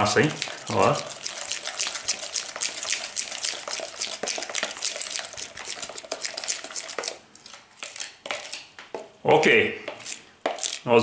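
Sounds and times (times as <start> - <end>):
fork beating batter in bowl: 0.0 - 9.1, 9.8 - 10.9.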